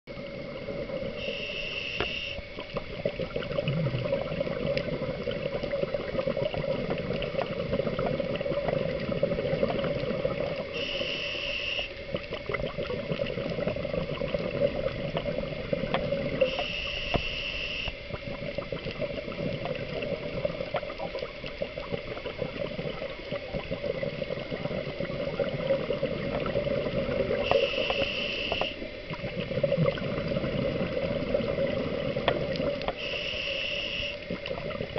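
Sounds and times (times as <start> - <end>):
bubbling water: 0.1 - 34.9
diver breathing through regulator: 1.1 - 2.4, 10.7 - 12.0, 16.4 - 18.0, 27.3 - 28.9, 32.9 - 34.3
fine crackling clicks: 1.9 - 11.1, 11.8 - 33.0.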